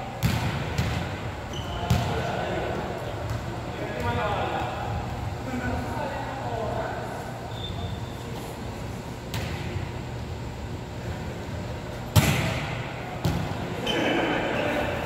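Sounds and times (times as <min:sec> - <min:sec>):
steady low hum: 0:00.0 - 0:15.0
volleyball struck by hand: 0:00.2 - 0:01.2, 0:12.1 - 0:13.5.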